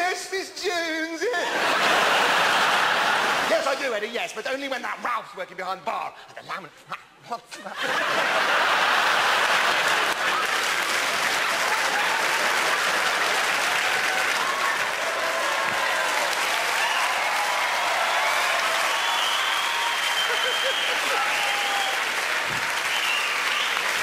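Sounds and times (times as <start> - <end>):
audience applauding: 7.9 - 24.0.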